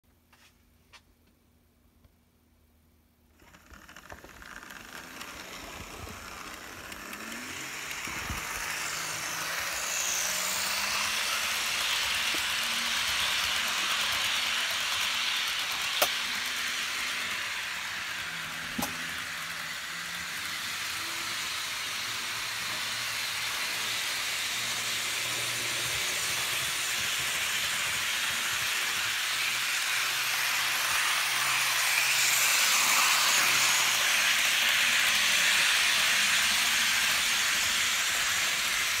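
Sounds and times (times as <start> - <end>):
model train running on track: 3.4 - 39.0.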